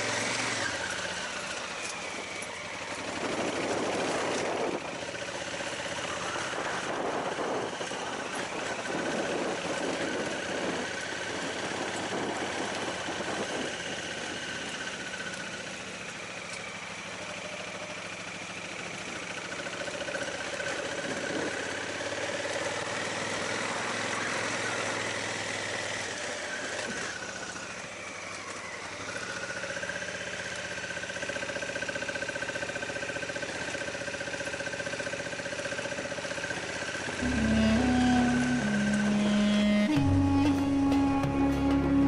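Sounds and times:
motorcycle engine running: 0.0 - 42.0
wind noise: 6.4 - 13.9.

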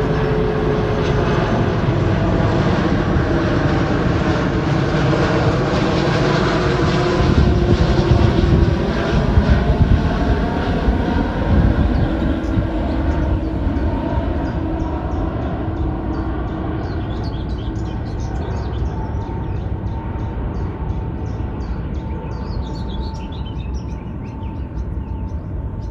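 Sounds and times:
jet engines rumbling: 0.0 - 25.9
bird chirping: 11.9 - 25.9.

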